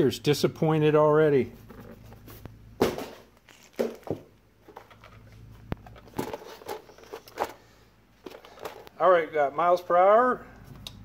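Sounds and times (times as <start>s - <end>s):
plastic wrap and foam rustling: 3.4s - 4.1s.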